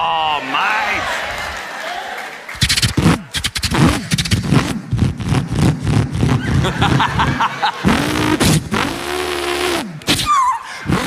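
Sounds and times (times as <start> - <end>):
man imitating engine revving: 7.8 - 11.0.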